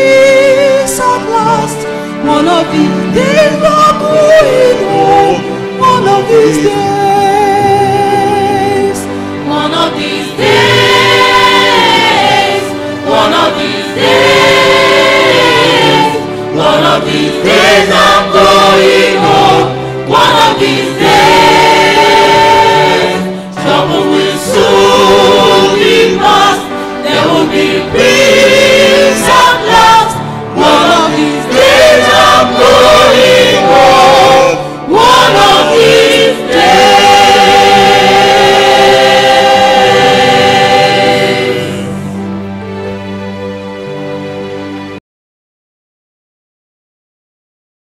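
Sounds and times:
choir singing gospel: 0.0 - 44.2.

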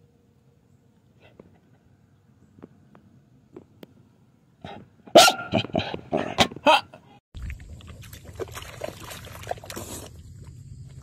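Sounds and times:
dog barking: 4.6 - 6.5
dog splashing in mud: 7.4 - 11.0.

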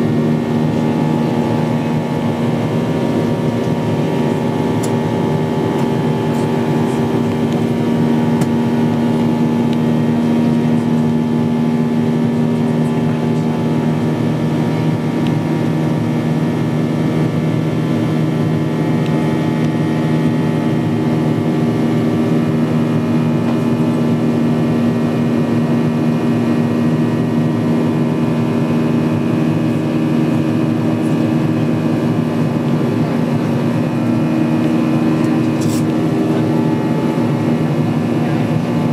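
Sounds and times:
jet engine drone: 0.0 - 38.9
air rushing along fuselage: 30.7 - 38.9.

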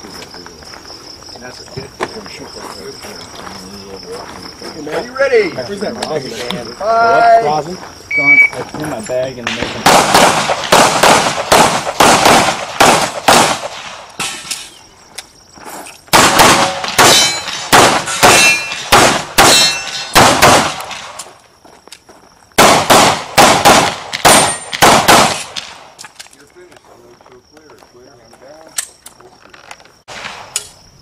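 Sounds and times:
rapid pistol shots: 9.5 - 14.5, 16.1 - 21.2, 22.6 - 25.8.

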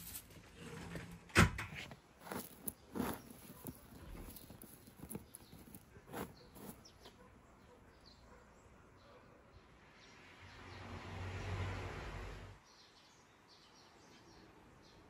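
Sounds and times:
dried tea leaves rustling: 2.2 - 6.9.

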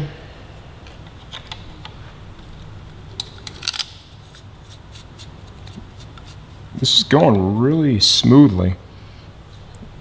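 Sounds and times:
clicks of small metal fasteners: 3.2 - 4.1.

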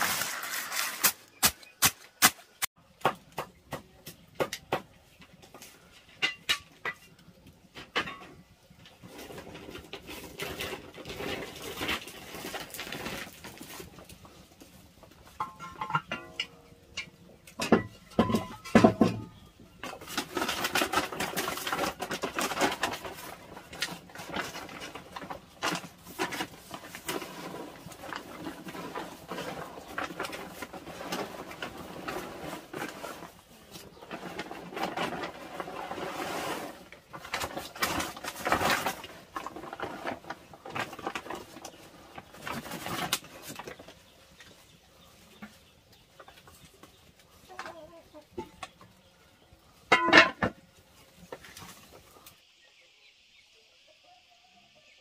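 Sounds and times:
farm birds calling: 39.1 - 55.0.

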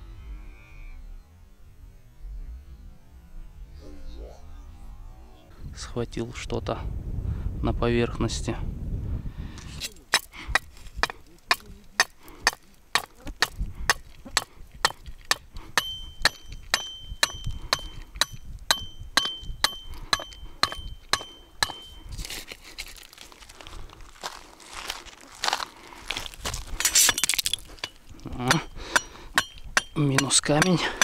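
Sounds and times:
stones crunching underfoot: 9.6 - 15.4, 21.0 - 28.7
rock striking metal stake: 9.6 - 22.3, 26.5 - 31.0
metal stake ringing: 14.3 - 22.0, 26.8 - 31.0.

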